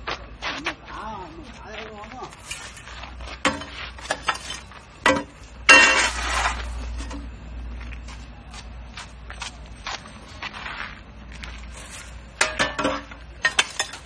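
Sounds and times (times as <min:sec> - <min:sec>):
loud ringing metal clang: 0:04.4 - 0:06.2, 0:12.4 - 0:14.0.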